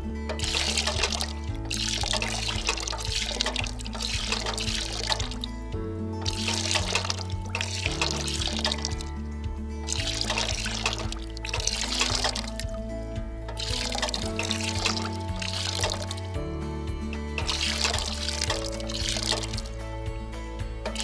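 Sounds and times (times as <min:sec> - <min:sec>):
background music: 0:00.0 - 0:21.0
fountain water splashing into metal basin: 0:00.3 - 0:05.5, 0:06.2 - 0:09.1, 0:09.8 - 0:12.7, 0:13.5 - 0:16.2, 0:17.3 - 0:19.8.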